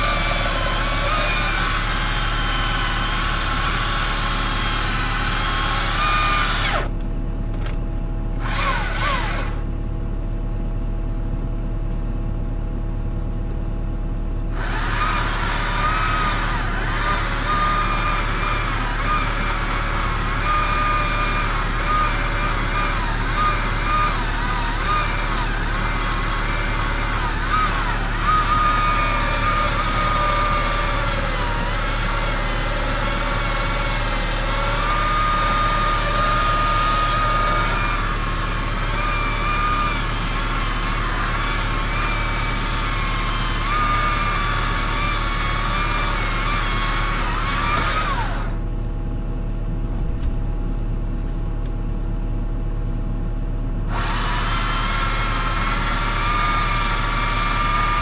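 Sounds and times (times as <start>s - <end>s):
machine engine whining: 0.0s - 7.0s, 8.3s - 9.7s, 14.5s - 48.7s.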